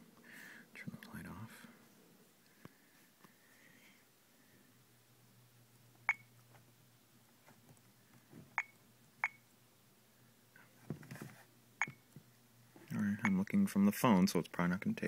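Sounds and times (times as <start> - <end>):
keypad beeps: 6.1 - 6.3, 8.6 - 9.4, 11.8 - 12.0.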